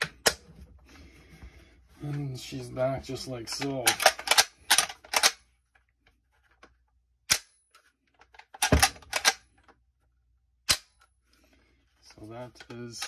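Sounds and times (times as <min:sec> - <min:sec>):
metallic clicks and snaps: 0:03.5 - 0:05.4.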